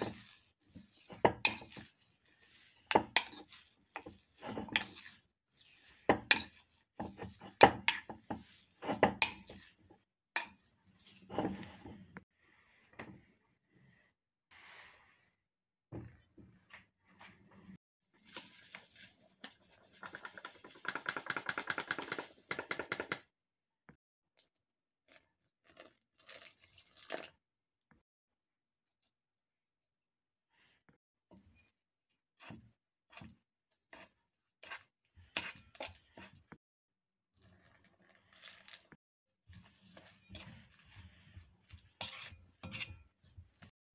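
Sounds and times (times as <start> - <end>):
metal spoon beating dough in bowl: 0.0 - 11.7, 32.4 - 36.6, 39.5 - 43.7.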